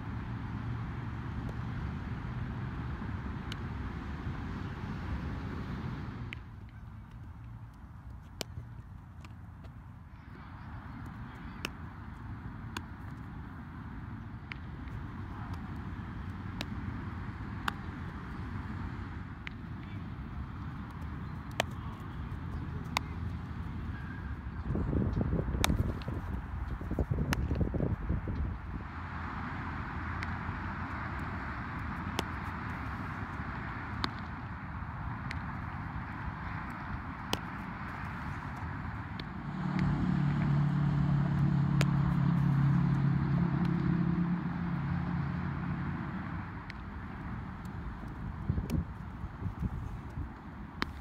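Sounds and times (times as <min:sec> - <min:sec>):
outdoor background noise: 0:00.0 - 0:51.0
vehicle engine humming: 0:00.0 - 0:51.0
wind buffeting microphone: 0:22.4 - 0:28.9, 0:47.8 - 0:51.0
baseball smacking into glove: 0:25.6 - 0:26.3.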